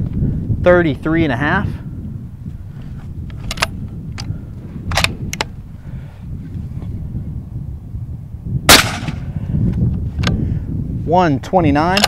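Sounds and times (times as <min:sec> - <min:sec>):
low rumble: 0:00.0 - 0:11.1
rifle metallic clicks: 0:03.3 - 0:04.3, 0:04.9 - 0:05.5.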